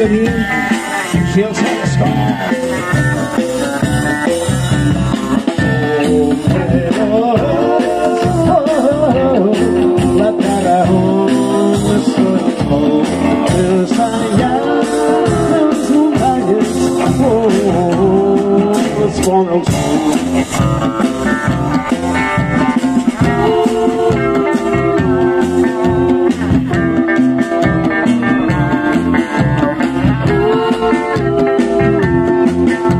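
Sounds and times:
rock and roll band playing: 0.0s - 32.9s
women singing together: 7.2s - 8.9s, 9.8s - 17.3s.

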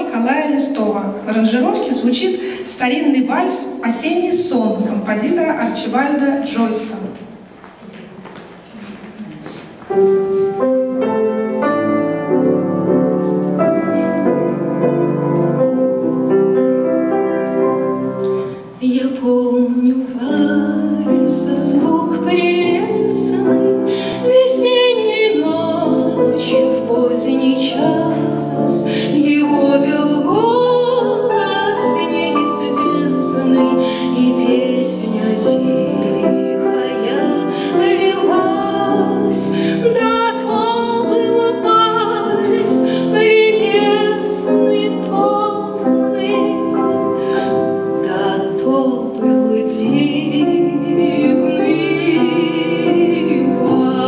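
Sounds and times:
grand piano playing a waltz: 0.0s - 7.0s, 9.7s - 54.0s
woman singing: 18.7s - 54.0s.

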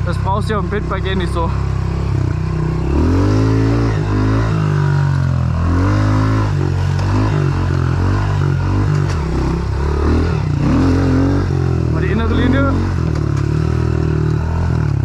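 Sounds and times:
motorbike engine revving: 0.0s - 15.0s.

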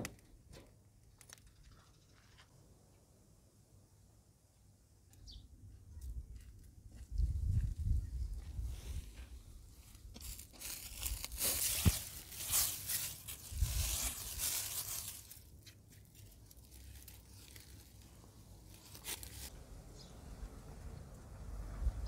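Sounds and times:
dry leaves crunching and rustling: 9.8s - 19.5s.

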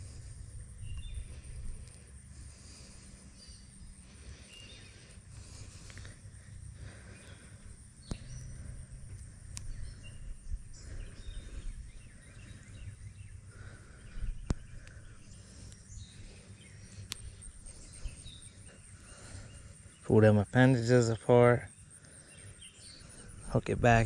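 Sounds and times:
birds chirping: 0.0s - 24.0s
insects chirping: 0.0s - 24.0s
sharp clicks: 9.1s - 9.7s, 16.9s - 17.4s.

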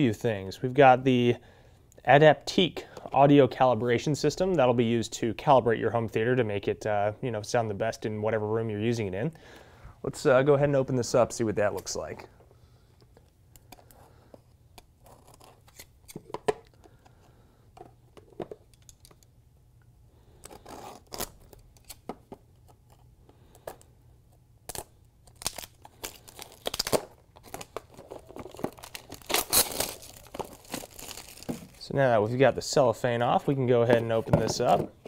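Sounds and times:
cellophane tearing: 20.4s - 22.0s, 24.7s - 31.9s
cellophane crinkling: 24.7s - 31.9s.

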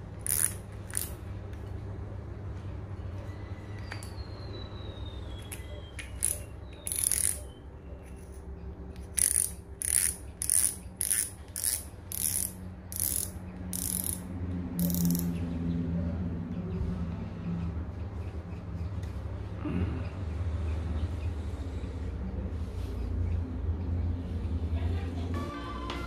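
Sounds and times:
fishing reel ratcheting: 0.2s - 1.2s, 6.0s - 7.5s, 9.0s - 15.3s.

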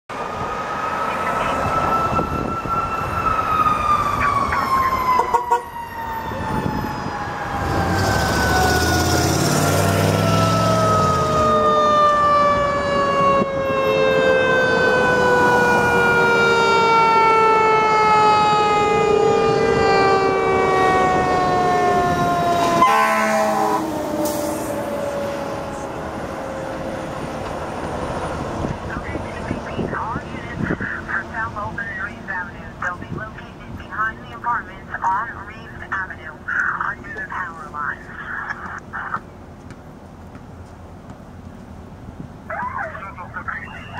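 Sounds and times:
fire truck siren wailing: 0.1s - 39.2s, 42.5s - 43.9s
air horn blasts: 22.8s - 24.7s.

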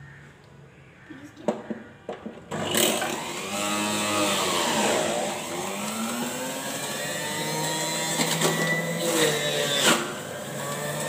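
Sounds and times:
juicer motor whining: 2.5s - 11.0s.

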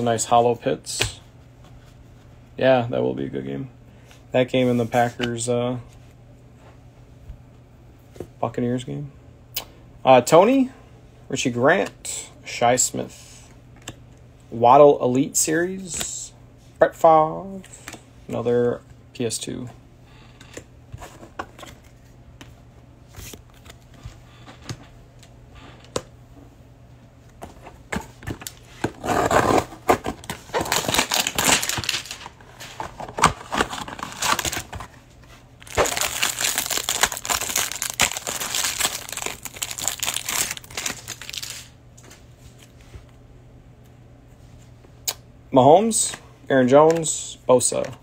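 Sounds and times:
plastic wrapper crinkling and tearing: 30.5s - 32.3s, 33.0s - 34.8s, 35.6s - 41.7s.

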